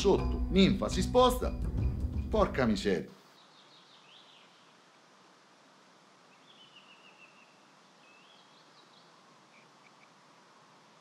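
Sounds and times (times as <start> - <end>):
faint bird chirps: 3.2 - 4.8, 6.2 - 10.2.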